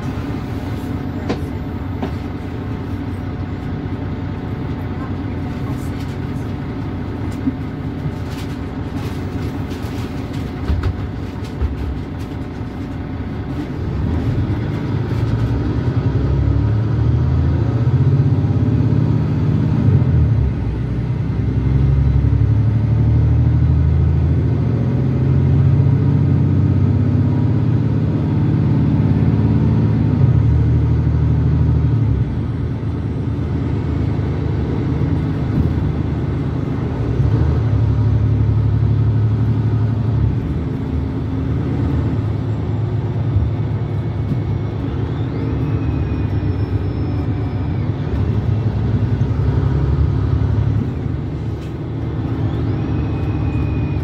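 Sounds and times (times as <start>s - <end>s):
bus diesel engine accelerating: 0.0s - 54.0s.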